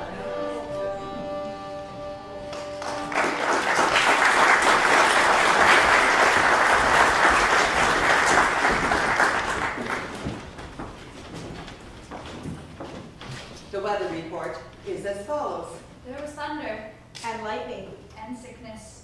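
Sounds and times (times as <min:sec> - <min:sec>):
audience applauding: 0:02.5 - 0:10.8.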